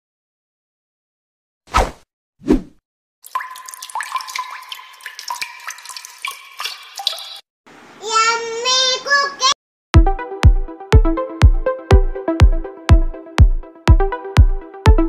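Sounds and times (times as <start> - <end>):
electronic music with kick drum: 10.0 - 15.0.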